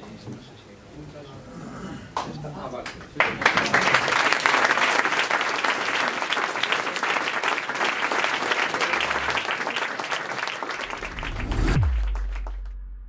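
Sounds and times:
audience applauding: 0:03.2 - 0:12.8
deep steady hum: 0:10.8 - 0:13.0
low whoosh falling in pitch: 0:10.8 - 0:13.0.

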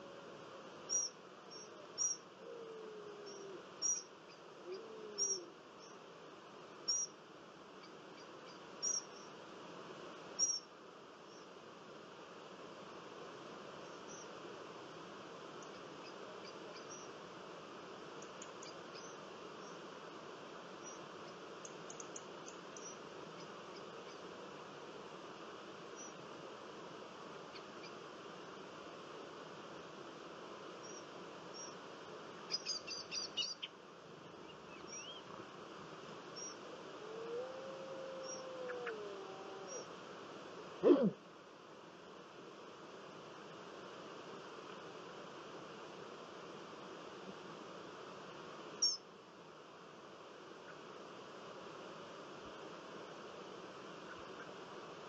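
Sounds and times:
faint outdoor hiss: 0:00.0 - 0:55.0
small birds chirping: 0:00.9 - 0:02.3, 0:03.2 - 0:06.0, 0:07.8 - 0:09.4, 0:15.6 - 0:17.2, 0:18.2 - 0:19.8, 0:20.8 - 0:24.2, 0:32.4 - 0:35.4, 0:36.3 - 0:36.6.

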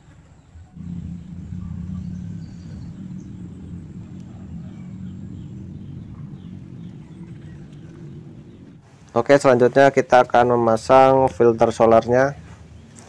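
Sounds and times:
motor humming: 0:00.8 - 0:08.8.

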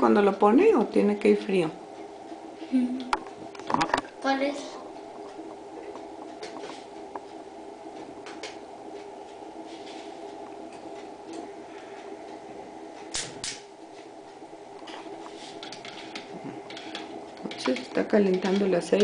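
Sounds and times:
mechanical hum: 0:00.0 - 0:19.0
sharp clicks: 0:13.1 - 0:13.7.

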